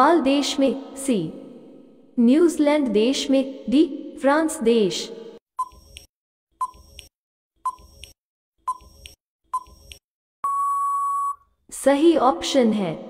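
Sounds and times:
long steady beep: 10.4s - 11.4s
short beeps: 10.4s - 11.4s.

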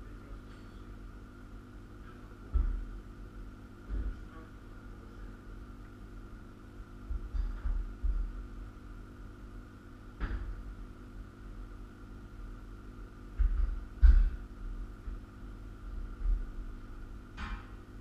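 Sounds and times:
steady low hum: 0.0s - 18.0s
metal knocks and clanks: 13.4s - 14.4s.

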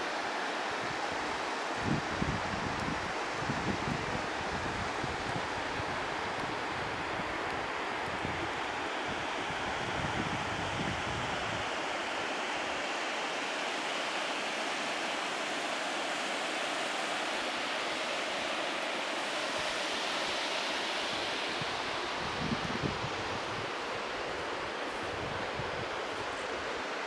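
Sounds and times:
river rapids rushing: 0.0s - 27.0s
wind buffeting microphone: 1.8s - 8.6s, 21.6s - 26.7s.

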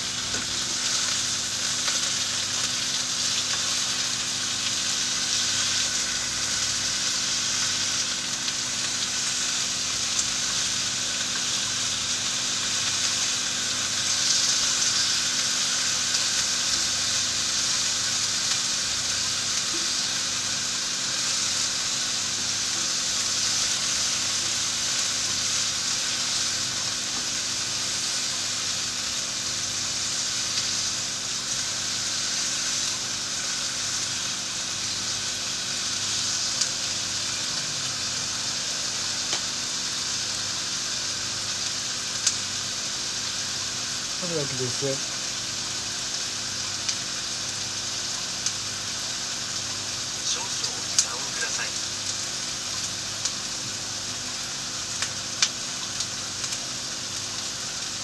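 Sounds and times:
meat sizzling in a frying pan: 0.0s - 58.0s.

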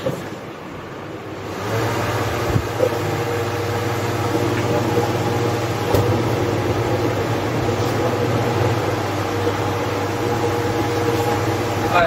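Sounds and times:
fan motor hum with air rush: 0.0s - 12.0s.

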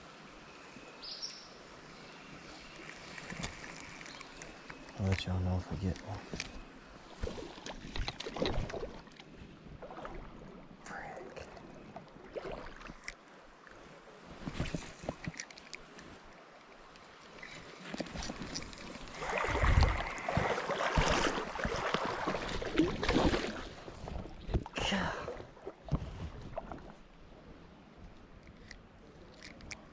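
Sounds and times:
creek water splashing: 1.7s - 27.7s
small clicks: 2.8s - 5.3s, 28.4s - 29.9s.

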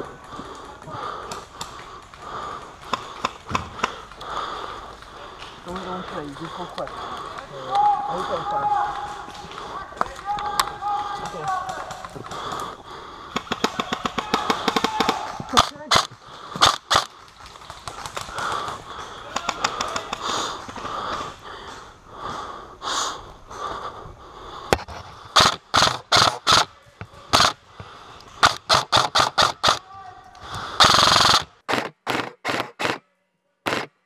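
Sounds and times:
airsoft rifle continuous burst: 0.0s - 23.0s, 25.2s - 33.0s, 33.7s - 33.9s
airsoft rifle shots: 13.3s - 17.1s, 25.3s - 26.7s, 27.3s - 27.6s, 28.4s - 29.8s, 30.8s - 33.0s, 33.6s - 33.9s.

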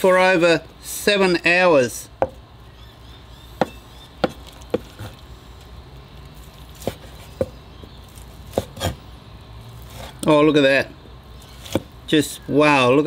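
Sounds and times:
cleaver knocking on wooden board: 3.6s - 4.9s.

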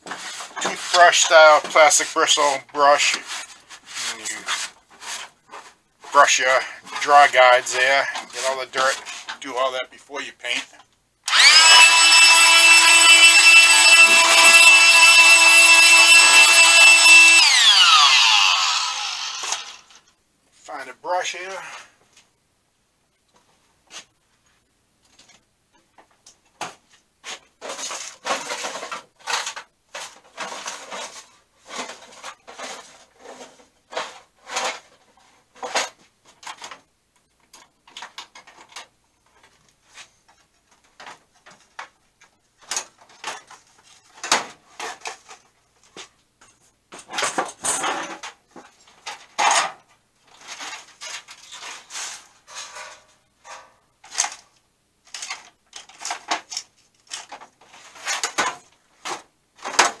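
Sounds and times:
metal tools clinking and clattering: 47.0s - 48.3s.

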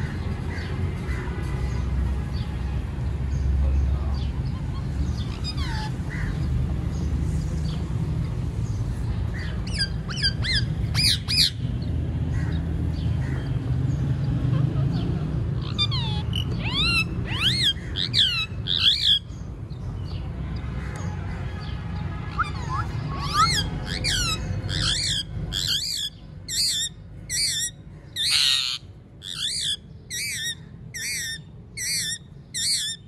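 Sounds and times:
parakeets squawking: 3.9s - 7.8s, 9.3s - 19.4s, 21.6s - 33.0s.

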